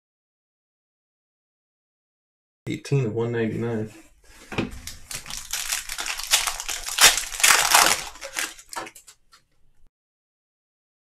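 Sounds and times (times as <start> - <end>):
foil wrapper tearing and crinkling: 4.8 - 9.4.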